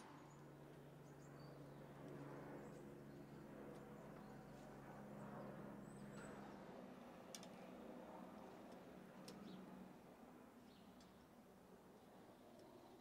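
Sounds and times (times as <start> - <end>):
faint light ticks: 7.3 - 7.6.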